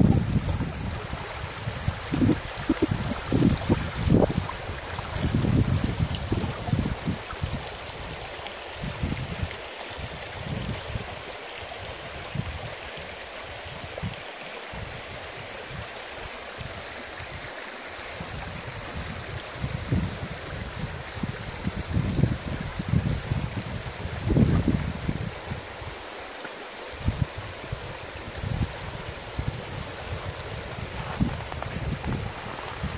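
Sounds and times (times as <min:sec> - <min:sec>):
wind buffeting microphone: 0:00.0 - 0:08.2, 0:18.1 - 0:26.0, 0:27.0 - 0:32.9
stream babbling over stones: 0:00.0 - 0:32.9.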